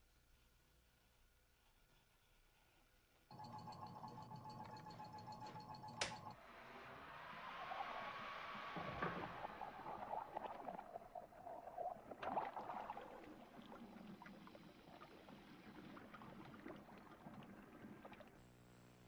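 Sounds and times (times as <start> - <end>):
water pouring into a tank: 6.5 - 18.4.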